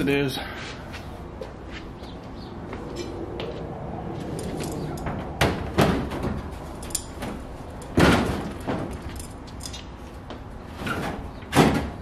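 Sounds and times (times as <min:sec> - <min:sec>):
hood thudding against truck body: 0:05.1 - 0:06.6, 0:07.2 - 0:09.1.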